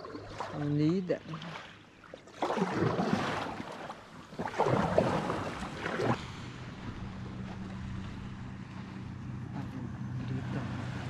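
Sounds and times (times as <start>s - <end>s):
water splashing around hulls: 0.0s - 11.0s
steady low hum: 3.9s - 11.0s.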